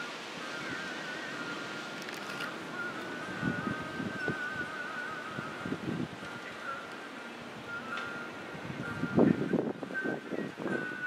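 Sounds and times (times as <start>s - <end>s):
strong wind blowing: 0.0s - 11.0s
faint wavering high whistle: 0.4s - 2.0s, 2.7s - 5.7s, 7.6s - 11.0s.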